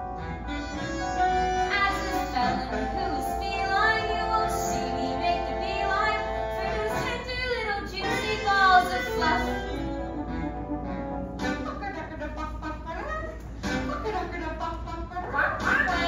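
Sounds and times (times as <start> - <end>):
instrumental accompaniment: 0.0 - 16.0
young people singing: 2.4 - 5.0.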